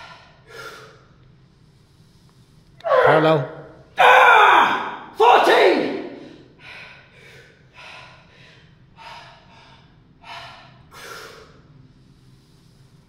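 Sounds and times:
man breathing hard: 0.0s - 2.6s, 6.2s - 13.0s.

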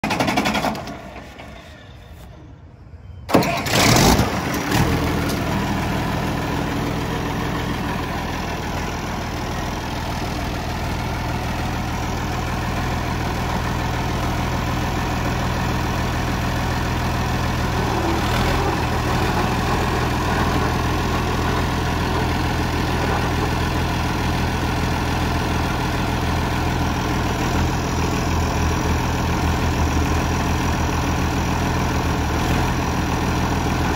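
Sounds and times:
tractor diesel engine starting and idling: 0.0s - 2.5s, 3.2s - 33.9s.

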